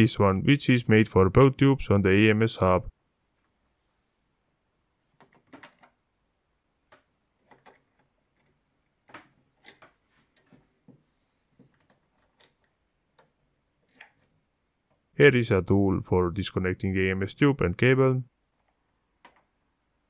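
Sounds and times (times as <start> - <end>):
faint plastic clicks and taps: 6.8 - 15.1, 18.5 - 19.6.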